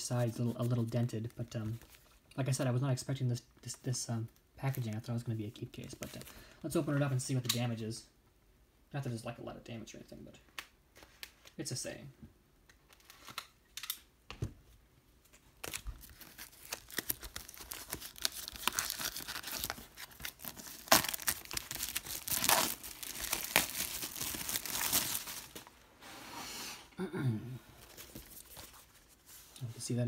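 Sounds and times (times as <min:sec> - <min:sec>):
plastic wrap crackling and ripping: 0:15.6 - 0:25.8.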